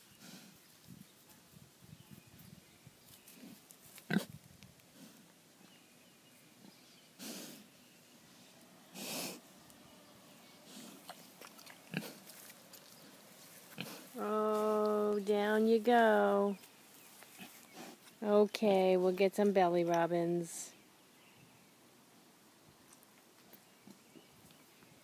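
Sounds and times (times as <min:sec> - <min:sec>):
pig grunting and snuffling: 0:00.0 - 0:00.7, 0:03.2 - 0:05.3, 0:06.6 - 0:07.7, 0:08.9 - 0:09.5, 0:10.5 - 0:15.2, 0:17.2 - 0:18.1
pig breathy huffs: 0:00.1 - 0:00.6, 0:07.1 - 0:07.8, 0:08.9 - 0:09.4, 0:10.6 - 0:11.2.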